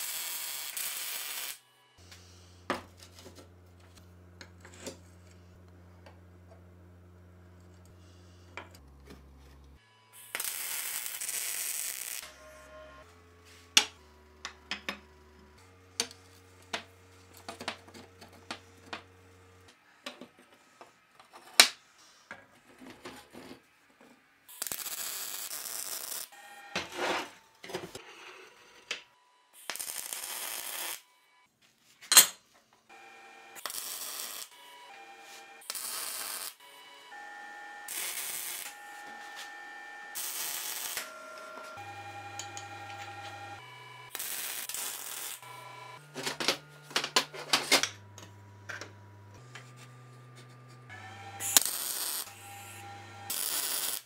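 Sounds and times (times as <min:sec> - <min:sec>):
welding crackling hiss: 0:00.0 - 0:01.6, 0:10.2 - 0:12.3, 0:24.5 - 0:26.3, 0:29.6 - 0:31.0, 0:33.6 - 0:34.6, 0:35.6 - 0:36.6, 0:37.9 - 0:39.5, 0:40.1 - 0:41.1, 0:43.6 - 0:45.5, 0:51.4 - 0:52.7, 0:53.3 - 0:54.0.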